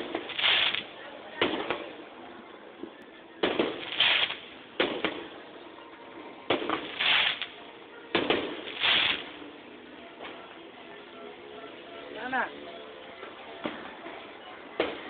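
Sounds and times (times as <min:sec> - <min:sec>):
hissing crackle of sparks: 0:00.0 - 0:01.0, 0:03.5 - 0:05.1, 0:06.6 - 0:07.6, 0:08.3 - 0:09.4
fireworks sharp reports: 0:00.0 - 0:02.0, 0:03.4 - 0:05.4, 0:06.5 - 0:09.4.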